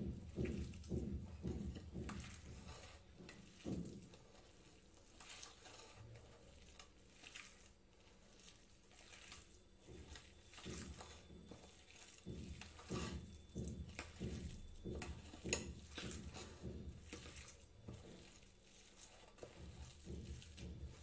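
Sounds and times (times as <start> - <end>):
soft rhythmic thumps: 0.0 - 4.4, 9.7 - 18.6, 19.4 - 21.0
hands squishing mixture in bowl: 0.0 - 21.0.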